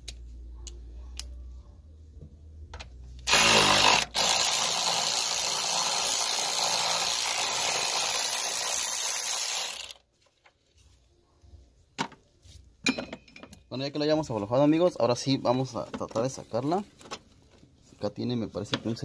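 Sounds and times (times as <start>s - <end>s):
power tool motor spinning: 3.3s - 10.0s.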